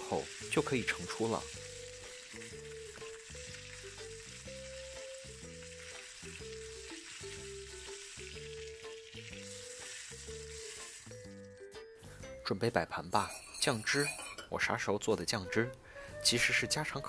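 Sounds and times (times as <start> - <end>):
chicken sizzling in oil: 0.0 - 12.2
soft background music: 0.0 - 17.0
oil spitting: 0.2 - 11.4.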